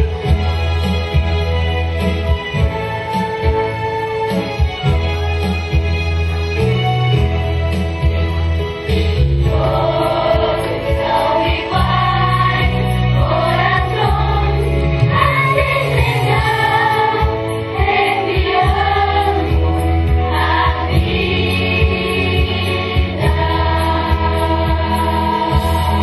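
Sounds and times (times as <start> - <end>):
low instrumental accompaniment: 0.0 - 26.0
children's choir singing: 9.4 - 26.0.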